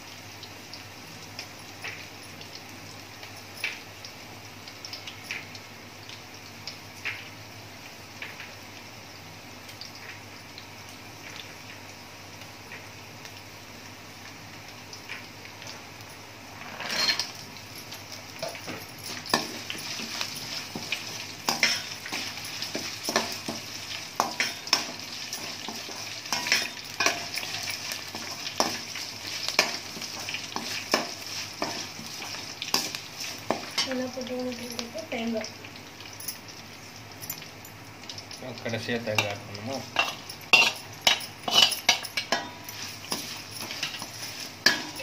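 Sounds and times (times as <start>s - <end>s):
spices sizzling in hot oil: 0.0s - 45.0s
spatula scraping metal pan: 40.0s - 45.0s.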